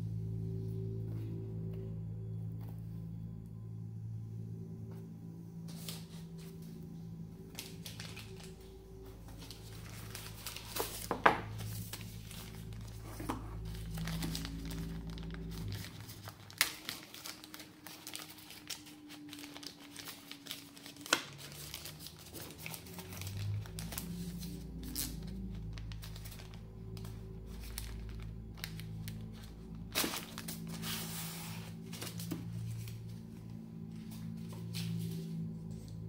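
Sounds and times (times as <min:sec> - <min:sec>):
background music: 0:00.0 - 0:36.0
plastic bag crinkling: 0:07.4 - 0:32.8.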